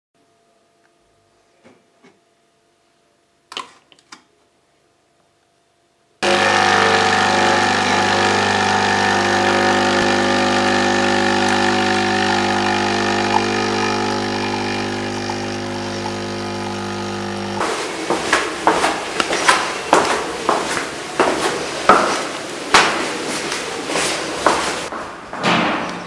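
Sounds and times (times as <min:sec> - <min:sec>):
coffee machine pump humming: 0:06.2 - 0:24.9.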